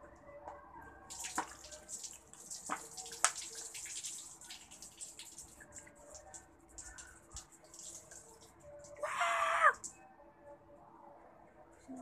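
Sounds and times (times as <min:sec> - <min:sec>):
water pouring and splashing: 0:01.1 - 0:09.9.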